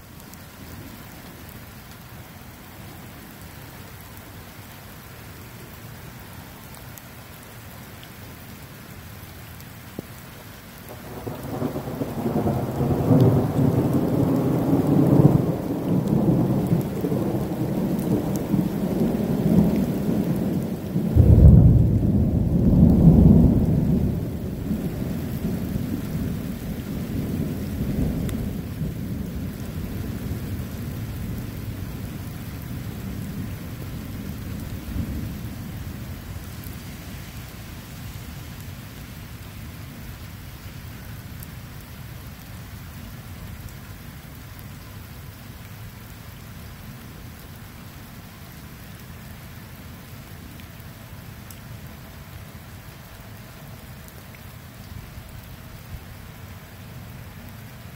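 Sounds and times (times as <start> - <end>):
steady rain: 0.0 - 57.9
thunder rumbling: 10.9 - 36.8.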